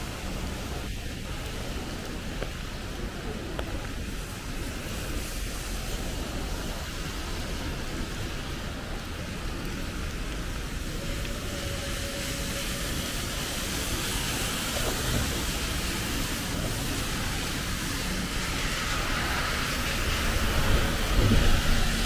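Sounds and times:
tyres hissing on wet road: 0.0s - 22.0s
electric bus passing: 4.0s - 22.0s.

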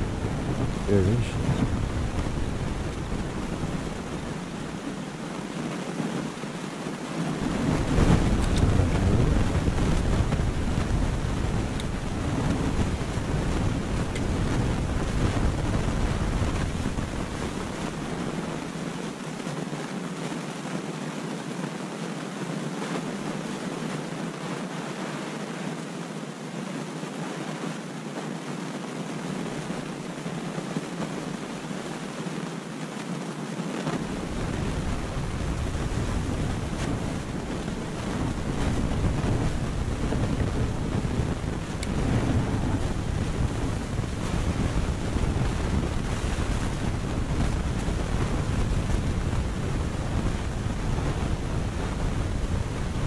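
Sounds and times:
deep wind rumble: 0.0s - 19.2s, 33.8s - 53.0s
wind buffeting microphone: 0.0s - 19.8s, 33.8s - 53.0s.

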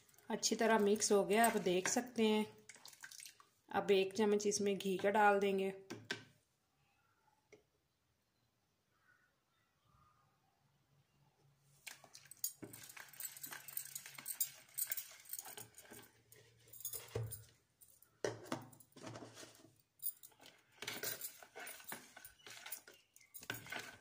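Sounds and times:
spoon stirring batter in pot: 0.6s - 3.5s.

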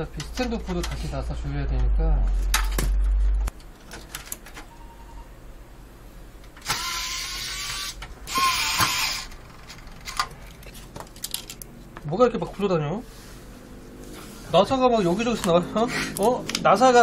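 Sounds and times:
electric screwdriver whirring: 6.6s - 9.3s
screws and parts clattering: 7.6s - 11.7s.

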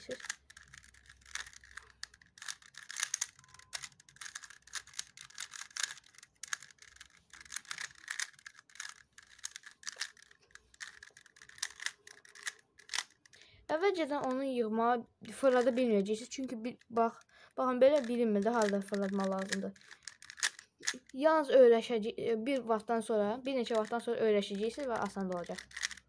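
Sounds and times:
puzzle cube layers clicking: 0.0s - 13.4s, 15.3s - 17.3s, 17.9s - 21.2s, 23.7s - 23.9s, 24.5s - 26.0s.

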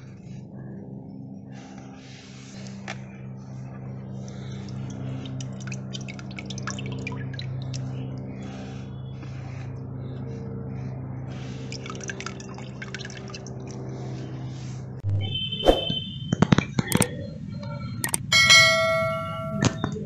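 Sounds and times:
steady low hum: 0.0s - 20.0s
water splashing and dripping: 4.6s - 7.9s, 11.7s - 13.8s.

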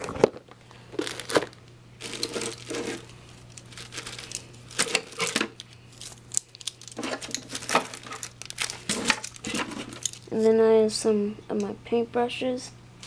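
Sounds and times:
plastic boxes clicking and clattering: 6.6s - 10.3s.

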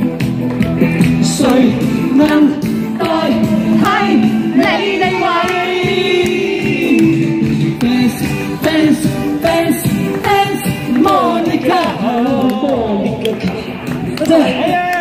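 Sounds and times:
musical accompaniment: 0.0s - 15.0s
person singing a pop song: 0.6s - 15.0s.

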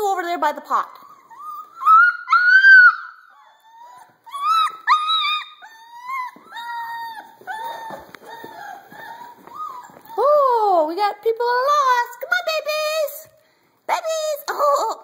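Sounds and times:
puppies yelping and whining: 0.8s - 10.5s.

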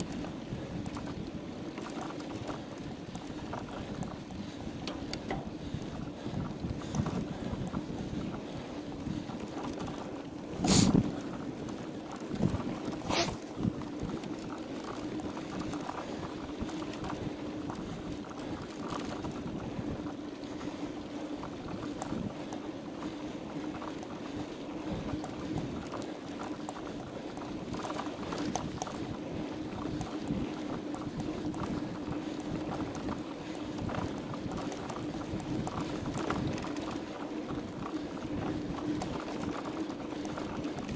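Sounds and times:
bike frame rattling over bumps: 0.0s - 40.9s
bike tyres on dirt track: 0.0s - 40.9s
wind on microphone: 0.0s - 40.9s.

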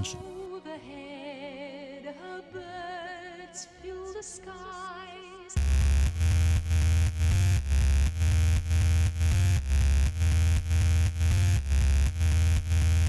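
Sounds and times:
dubstep electronic music: 0.0s - 0.4s, 5.6s - 13.0s.

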